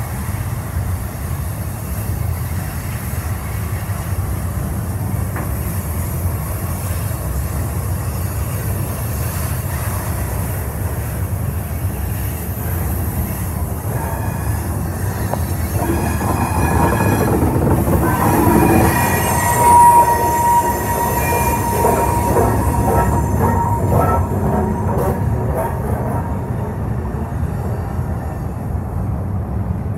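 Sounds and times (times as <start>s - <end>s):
steel wheels rumbling on rail: 0.0s - 29.9s
wheels squealing: 13.4s - 26.6s
clacks over rail joints: 14.6s - 26.4s.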